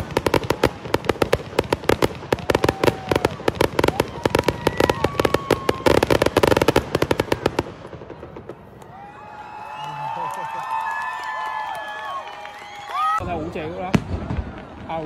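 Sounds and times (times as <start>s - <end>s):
fireworks bangs and crackles: 0.0s - 9.5s, 12.6s - 15.0s.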